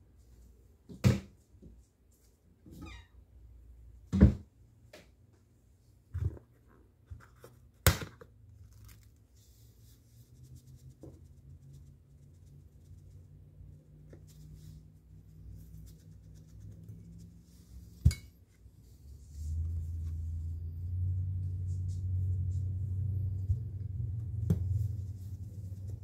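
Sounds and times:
low electric hum: 0:08.0 - 0:26.0.

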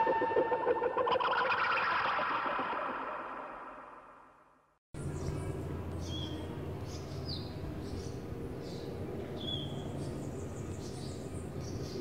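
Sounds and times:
birds chirping: 0:05.0 - 0:12.0.

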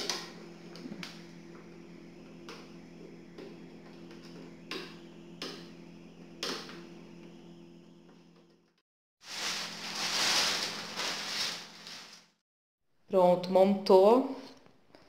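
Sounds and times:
steady low hum: 0:00.0 - 0:12.2.

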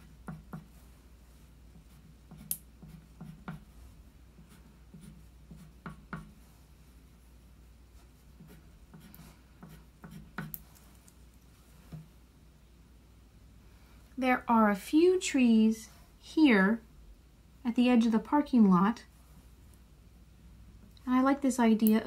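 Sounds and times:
crayon scratching on paper: 0:01.7 - 0:06.5, 0:08.0 - 0:10.7.

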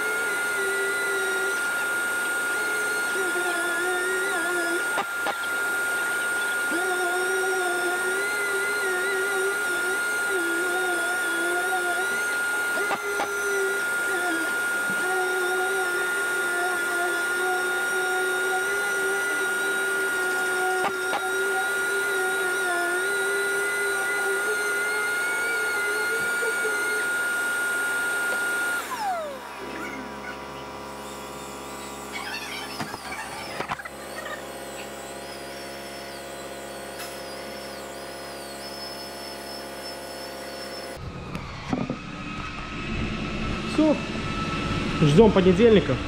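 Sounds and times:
orbital sander running: 0:00.0 - 0:46.0
steady machine hum: 0:00.0 - 0:46.0.

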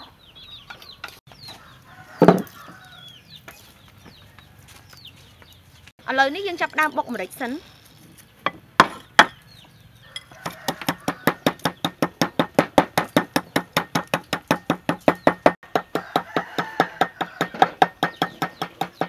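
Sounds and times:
wooden pestle pounding in mortar: 0:10.4 - 0:19.0.

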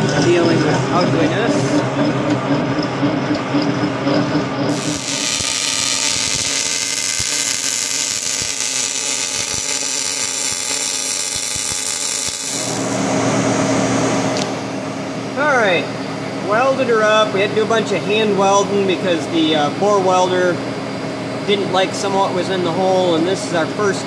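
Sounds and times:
boring mill running: 0:00.0 - 0:13.6
welding arc hissing and crackling: 0:04.7 - 0:13.0.

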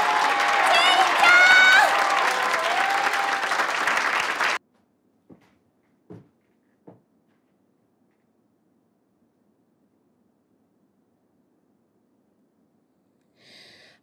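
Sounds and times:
audience applauding and cheering: 0:00.0 - 0:04.6
soft thumps: 0:05.3 - 0:07.1.

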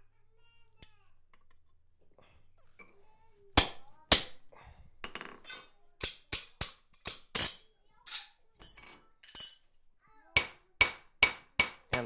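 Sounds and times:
hammer striking steel punch: 0:03.6 - 0:04.4, 0:10.4 - 0:12.0
metal handling and scraping: 0:05.0 - 0:09.8.

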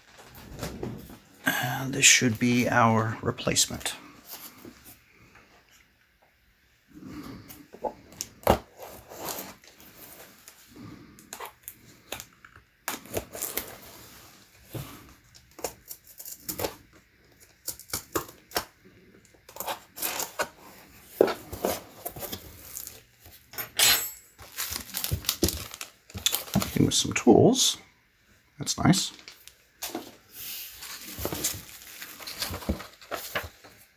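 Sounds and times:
cardboard and plastic rustling: 0:07.8 - 0:18.8, 0:19.4 - 0:23.4, 0:24.4 - 0:27.1, 0:29.1 - 0:33.9.

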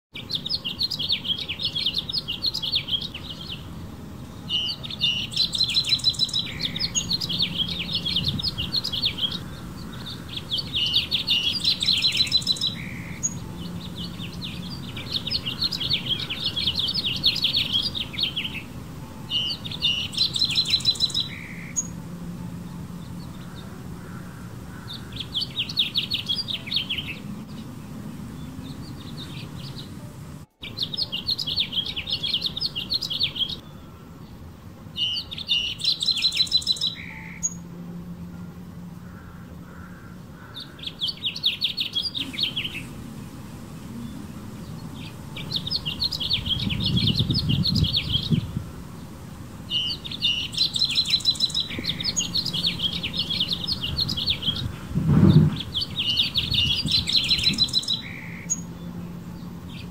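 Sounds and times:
finch warbling song: 0:00.2 - 0:33.7, 0:40.4 - 0:48.8.

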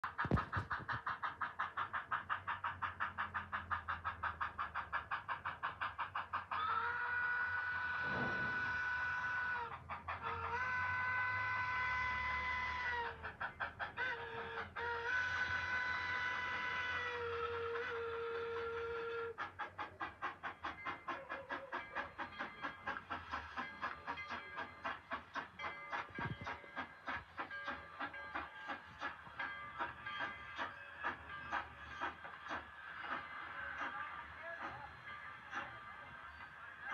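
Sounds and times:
steam locomotive exhaust chuffs: 0:00.0 - 0:36.9
steam whistle blast: 0:07.1 - 0:09.7, 0:10.7 - 0:13.1, 0:14.3 - 0:19.4.

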